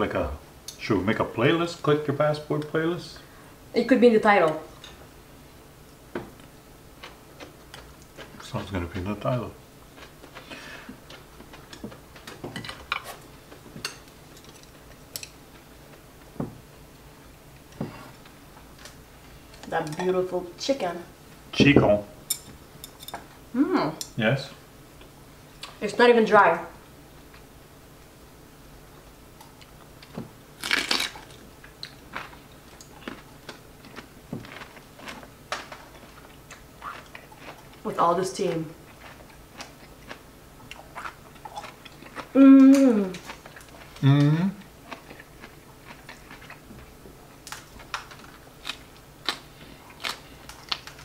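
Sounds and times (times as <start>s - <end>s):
food chewing and crunching: 6.3s - 20.2s, 29.4s - 51.0s.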